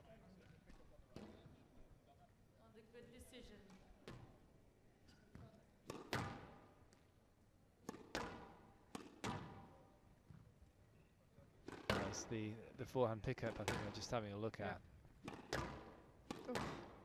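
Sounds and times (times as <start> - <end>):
squash ball cracks: 5.8 - 7.0, 7.8 - 9.7, 15.2 - 17.0.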